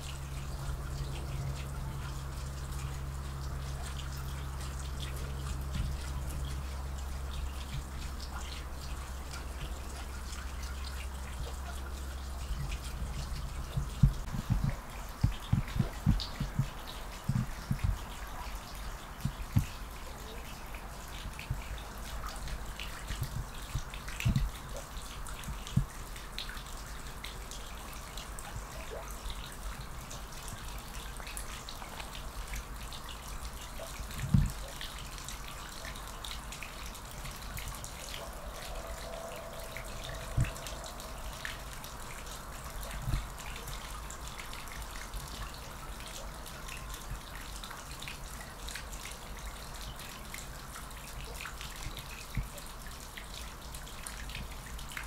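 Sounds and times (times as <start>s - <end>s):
soft low thumps: 12.6s - 18.0s.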